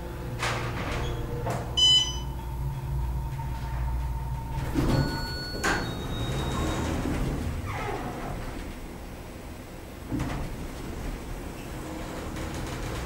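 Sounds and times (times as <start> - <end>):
elevator car humming: 0.0 - 13.0
loud electronic beep: 1.8 - 2.4
soft elevator chime: 1.8 - 6.9.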